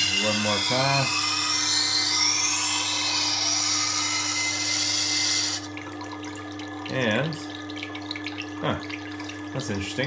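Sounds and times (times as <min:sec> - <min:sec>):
knife grinding on wet stone wheel: 0:00.0 - 0:05.7
motor hum: 0:00.0 - 0:10.0
faint trickle of water: 0:05.7 - 0:10.0.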